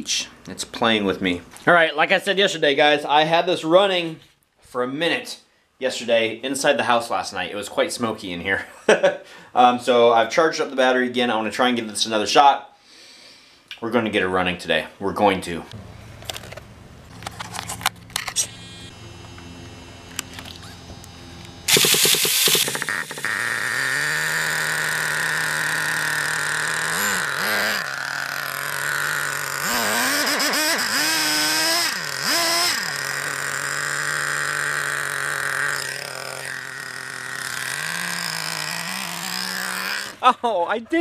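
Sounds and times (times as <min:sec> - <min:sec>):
small nitro engine idling and revving: 0:18.2 - 0:40.2.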